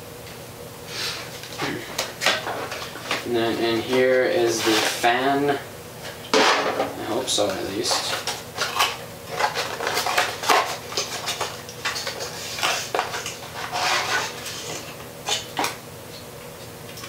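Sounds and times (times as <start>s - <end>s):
metal scraping on cardboard: 12.0s - 14.8s.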